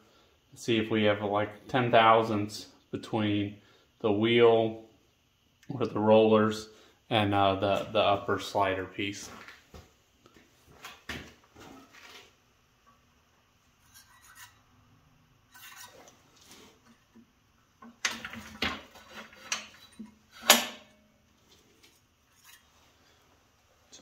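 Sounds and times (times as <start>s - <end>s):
metal blade scraping and clinking: 13.8s - 14.8s, 15.5s - 16.2s.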